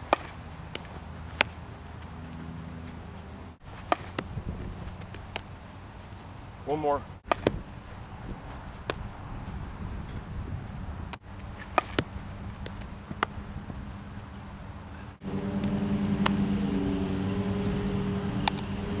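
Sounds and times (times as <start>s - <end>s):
baseball being hit: 0.0s - 1.6s, 3.7s - 5.6s, 7.2s - 7.6s, 8.8s - 9.1s, 11.4s - 13.4s, 15.4s - 16.8s
low outdoor rumble: 0.0s - 19.0s
motor hum: 11.4s - 19.0s.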